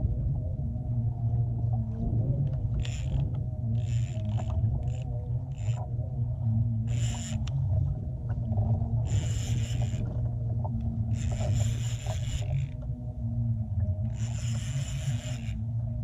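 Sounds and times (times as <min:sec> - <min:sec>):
steady low drone: 0:00.0 - 0:16.0
fishing reel cranking: 0:02.7 - 0:05.9, 0:06.8 - 0:07.7, 0:09.0 - 0:10.2, 0:11.1 - 0:12.8, 0:14.0 - 0:15.7.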